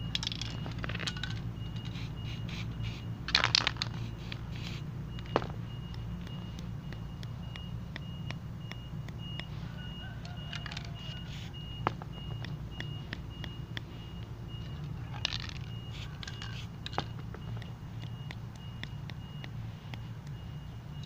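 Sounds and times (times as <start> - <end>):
low engine rumble: 0.0 - 21.0
reversing alarm beeping: 0.0 - 21.0
palette knife clicks and taps: 4.3 - 9.6, 10.2 - 21.0.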